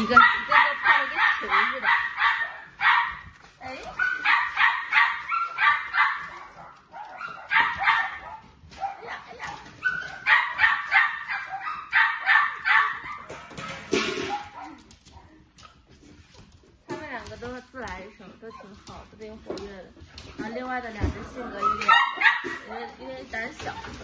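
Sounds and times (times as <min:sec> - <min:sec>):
puppies yapping: 0:00.0 - 0:03.3, 0:03.9 - 0:14.9, 0:21.5 - 0:24.0.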